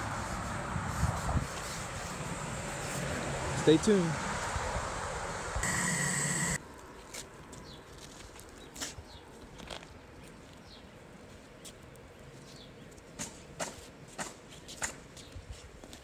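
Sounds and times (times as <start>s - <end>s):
squeegee and boots scuffing asphalt: 0.0s - 3.2s, 6.5s - 16.0s.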